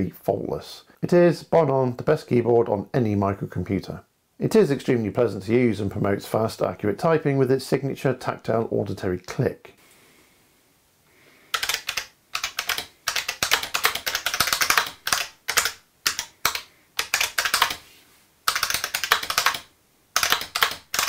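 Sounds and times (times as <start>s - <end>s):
fast clicky keyboard typing: 11.5s - 17.8s, 18.5s - 21.0s.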